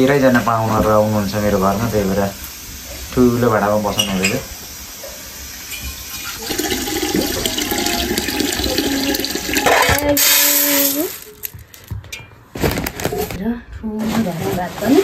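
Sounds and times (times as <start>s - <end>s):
water pouring into metal pot: 5.4s - 11.6s
grains poured into metal bowl: 10.2s - 11.6s.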